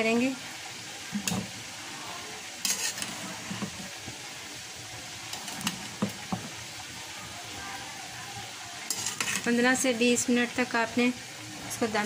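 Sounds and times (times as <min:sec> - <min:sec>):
spatula scraping a steel pan: 0:02.6 - 0:03.8, 0:08.9 - 0:09.6.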